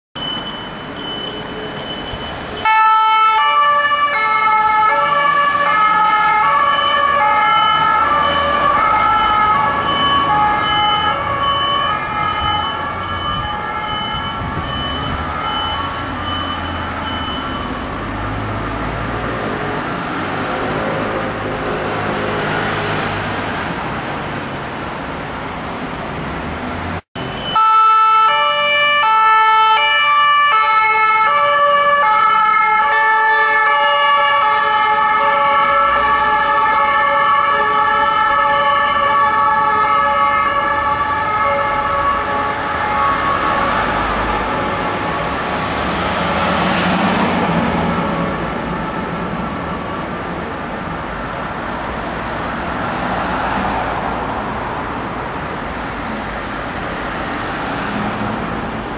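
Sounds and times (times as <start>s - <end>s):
two-tone ambulance siren: 0.2s - 19.5s, 27.2s - 51.5s
road and engine noise: 0.2s - 58.9s.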